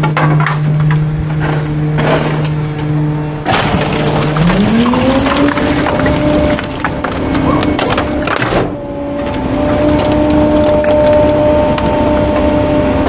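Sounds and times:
hydraulic packer blade: 0.0 - 13.0
garbage truck engine revving: 0.8 - 13.0
wood cracking and snapping: 3.5 - 12.4.

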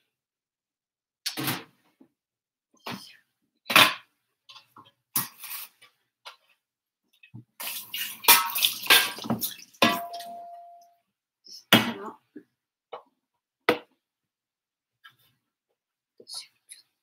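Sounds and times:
water splashing in sink: 7.6 - 10.4
dishes and utensils clattering: 7.7 - 10.8
dish ringing: 9.8 - 10.9.

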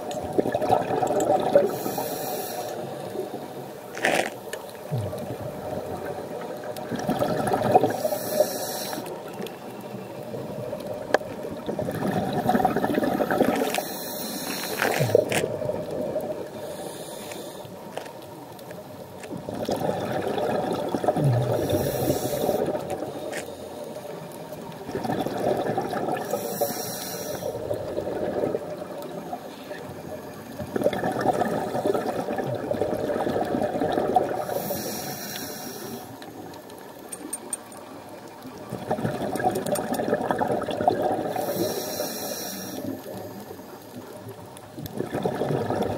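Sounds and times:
steady watery hiss: 0.0 - 45.9
diver breathing bubbles: 0.3 - 3.5, 4.8 - 9.4, 11.6 - 18.0, 19.4 - 24.2, 24.9 - 36.4, 38.7 - 44.0.

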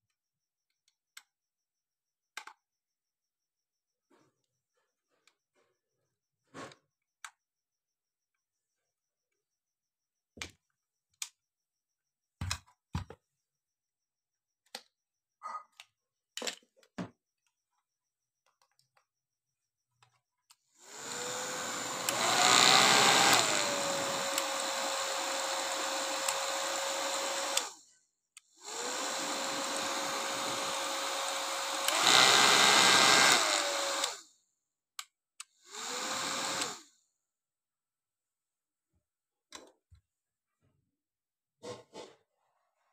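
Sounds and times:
hair dryer whirring: 20.8 - 27.8, 28.6 - 34.2, 35.6 - 36.9.

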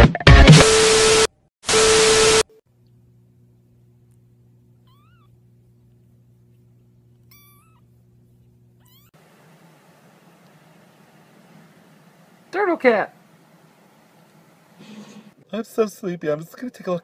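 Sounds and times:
faint low hum: 2.7 - 16.4
kitten mewing: 4.8 - 9.1.

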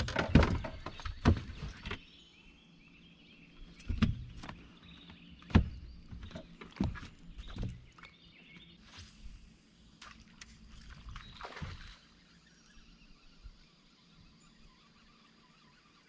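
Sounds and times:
knocks and clicks on boat deck: 0.0 - 2.1, 3.6 - 8.1.

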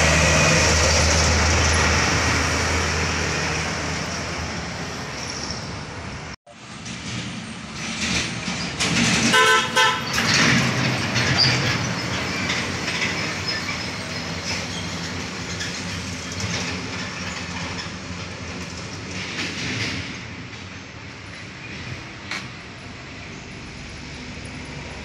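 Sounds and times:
heavy trucks passing: 0.0 - 25.0
vehicle horn toot: 9.3 - 10.2.

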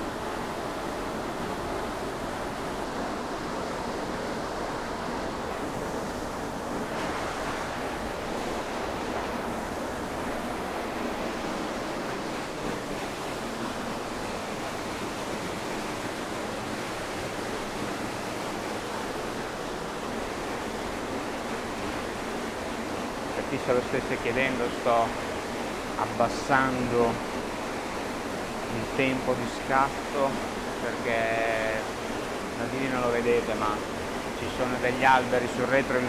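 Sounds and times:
small waterfall rushing: 0.0 - 36.0.

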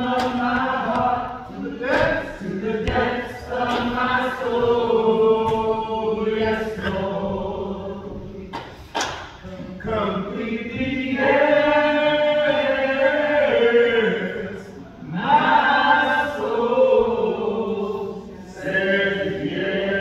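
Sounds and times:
group of voices singing: 0.0 - 20.0.

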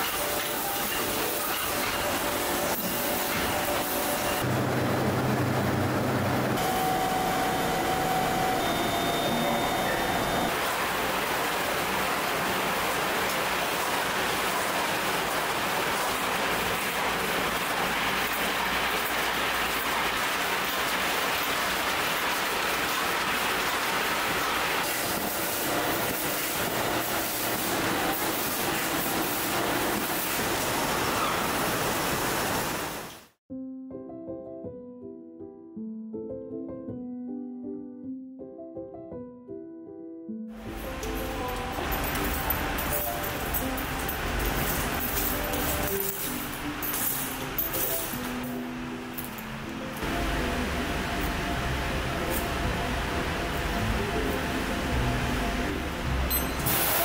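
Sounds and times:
production line machinery clatter: 0.0 - 33.1, 40.7 - 48.6, 56.2 - 57.0
soft piano music: 33.5 - 56.9.

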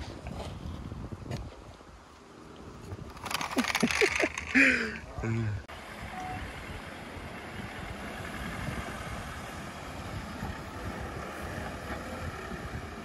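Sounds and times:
off-road vehicle engine rumbling: 3.0 - 13.0.

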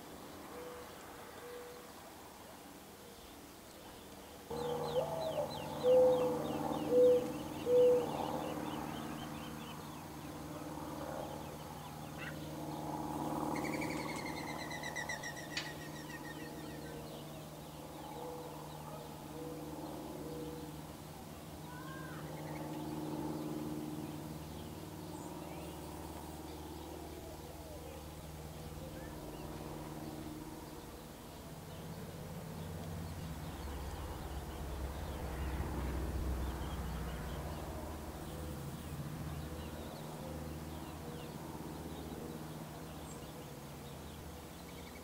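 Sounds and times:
steady low hum: 0.0 - 45.0
trilled bird call: 4.5 - 9.9, 11.8 - 12.6, 13.4 - 17.2.

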